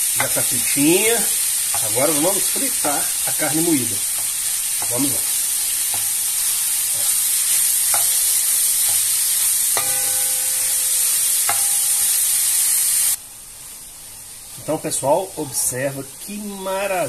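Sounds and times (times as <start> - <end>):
meat sizzling in a pan: 0.0 - 17.0
wooden spoon knocking on pan: 7.9 - 8.2, 11.5 - 11.7.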